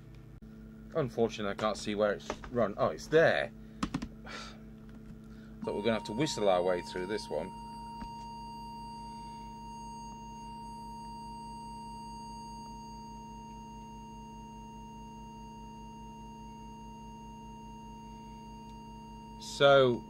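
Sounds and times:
low mains hum: 0:00.0 - 0:20.0
steady test tone: 0:05.6 - 0:20.0.

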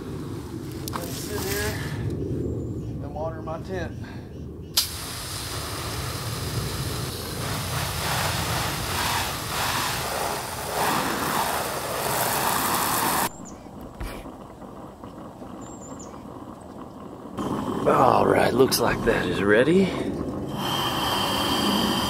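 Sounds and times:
hose spray hissing on canvas: 0:04.8 - 0:13.3, 0:20.5 - 0:22.0.

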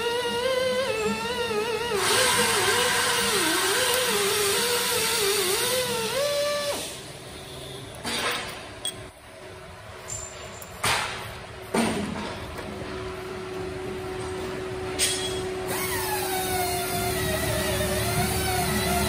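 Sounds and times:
hydraulic pump whining: 0:00.0 - 0:07.1, 0:15.0 - 0:19.0.

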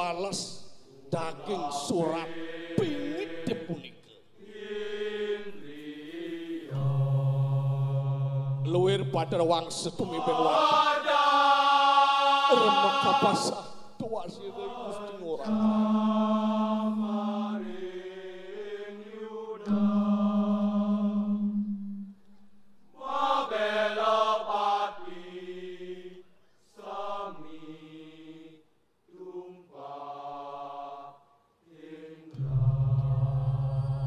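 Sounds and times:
person chanting in held notes: 0:12.3 - 0:20.0.

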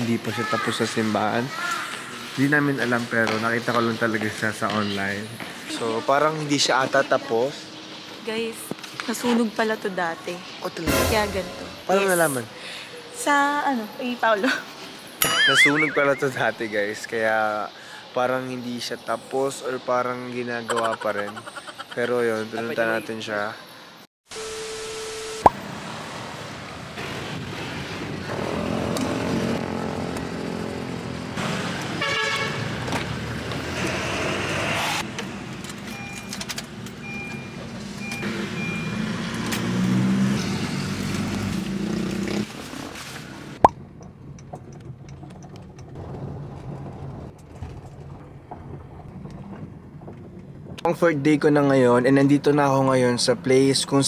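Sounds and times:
car engine and road noise: 0:00.0 - 0:15.2, 0:22.0 - 0:54.0
short high beep: 0:15.2 - 0:16.8.

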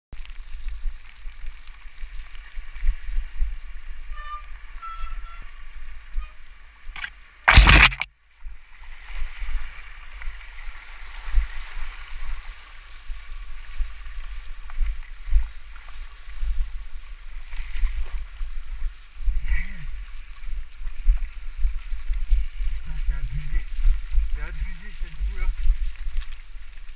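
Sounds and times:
bike tyres squelching in mud: 0:07.0 - 0:08.1
loud crash: 0:07.0 - 0:08.1.

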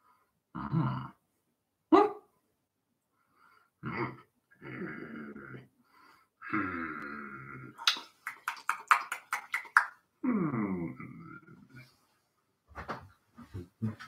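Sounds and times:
man making growling noises: 0:00.6 - 0:01.2, 0:03.8 - 0:05.7, 0:06.4 - 0:07.8, 0:10.2 - 0:11.8.

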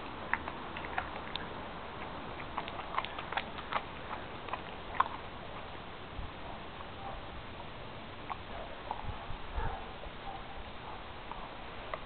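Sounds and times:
dog crunching bones: 0:00.0 - 0:05.7.

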